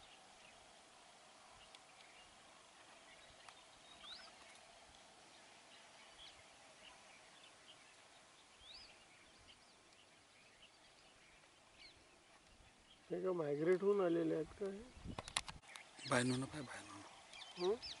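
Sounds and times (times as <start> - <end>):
faint wetland ambience: 0.0 - 18.0
small birds chirping: 0.0 - 18.0.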